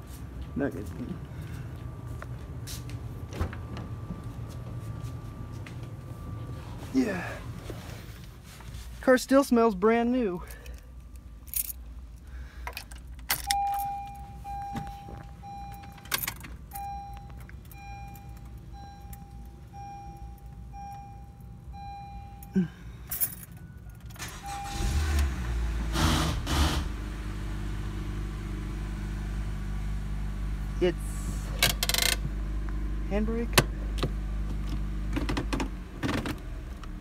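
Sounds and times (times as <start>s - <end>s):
car engine starting and idling: 10.2s - 37.0s
keys jangling: 11.4s - 11.8s, 12.7s - 14.2s, 22.4s - 24.3s
car warning chime beeping: 13.4s - 25.4s.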